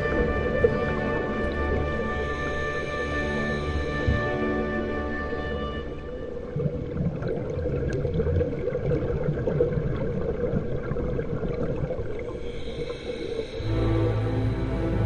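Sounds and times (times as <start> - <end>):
muffled underwater rumble: 0.0 - 15.0
bubbles gurgling underwater: 6.3 - 12.9.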